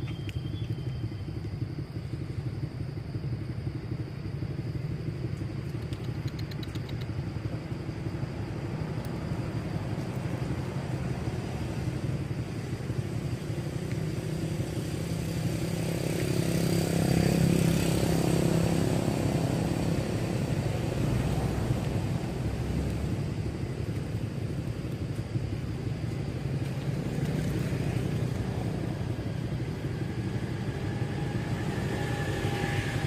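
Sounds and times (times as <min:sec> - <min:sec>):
steady low rumble: 0:00.0 - 0:16.4, 0:17.0 - 0:33.0
vehicle engine passing by: 0:08.2 - 0:25.0, 0:25.6 - 0:33.0.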